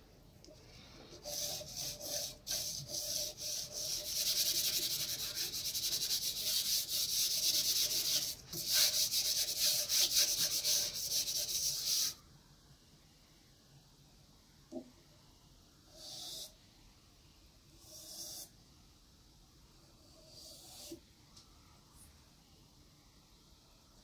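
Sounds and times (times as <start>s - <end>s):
hands rubbing pastel on paper: 1.1s - 12.2s.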